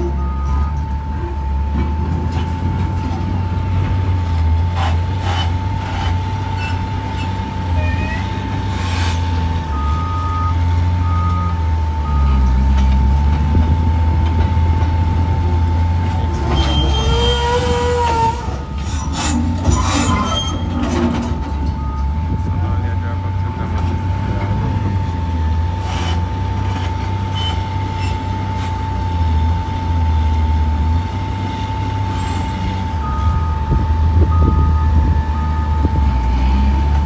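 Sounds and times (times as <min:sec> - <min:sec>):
constant whine: 0:00.0 - 0:37.0
heavy diesel engines running: 0:00.0 - 0:37.0
rising squeal of raised bucket: 0:16.4 - 0:21.2
backup alarm beeps: 0:21.7 - 0:22.2, 0:33.0 - 0:35.9.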